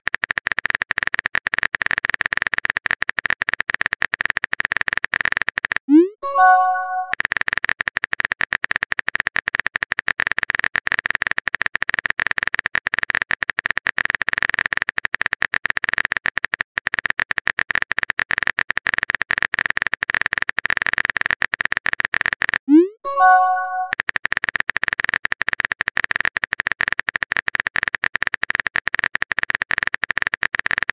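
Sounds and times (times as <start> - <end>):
rapid keyboard clicks: 0.0 - 5.8, 6.5 - 22.6, 23.2 - 30.9
chime-like notification tone: 6.2 - 7.1, 23.0 - 23.9.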